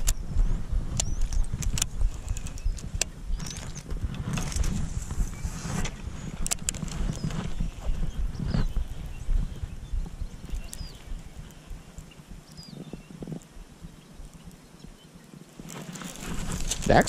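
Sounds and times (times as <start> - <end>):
sleeve rubbing against camera: 1.4 - 8.7, 15.6 - 17.0.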